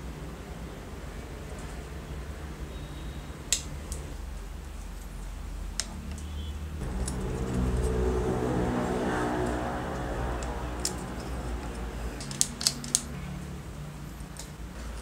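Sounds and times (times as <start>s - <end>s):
steady low hum: 4.0s - 15.0s
steady multi-pitched sound: 6.8s - 14.0s.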